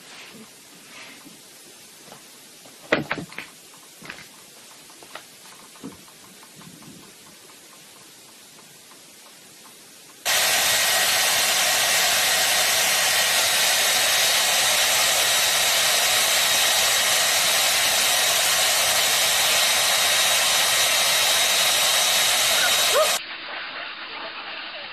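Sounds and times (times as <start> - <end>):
hair dryer running: 10.2 - 23.2.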